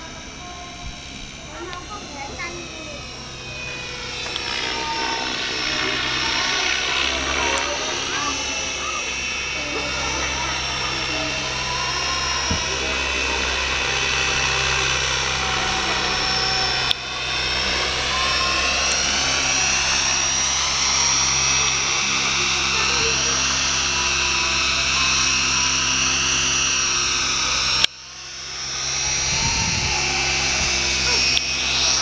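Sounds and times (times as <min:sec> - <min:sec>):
electric motor whine: 0:00.0 - 0:32.0.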